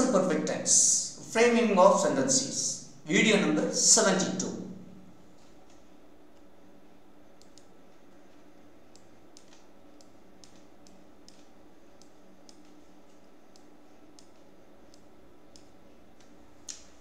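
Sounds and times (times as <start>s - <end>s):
steady low hum: 0.0s - 17.0s
computer clicks: 7.4s - 7.7s, 8.9s - 17.0s.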